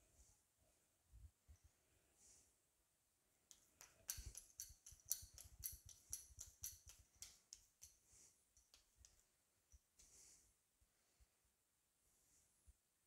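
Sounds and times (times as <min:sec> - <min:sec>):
hands patting dough: 0:03.5 - 0:10.2.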